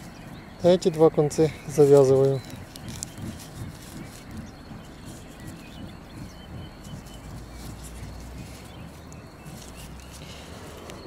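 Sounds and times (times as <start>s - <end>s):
bird chirping faintly: 0.0s - 11.0s
plastic bag crinkling: 1.6s - 4.4s
wind rumble: 2.4s - 11.0s.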